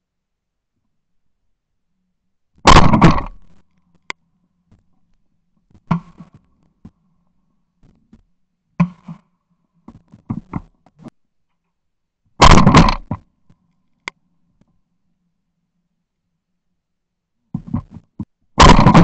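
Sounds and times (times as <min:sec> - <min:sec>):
sharp cracks and knocks: 0:02.6 - 0:07.0, 0:07.8 - 0:09.3, 0:09.9 - 0:11.6, 0:12.4 - 0:14.2, 0:17.6 - 0:19.0
shotgun shot: 0:02.7 - 0:03.5, 0:12.4 - 0:13.1, 0:18.6 - 0:19.0
click: 0:03.9 - 0:04.8.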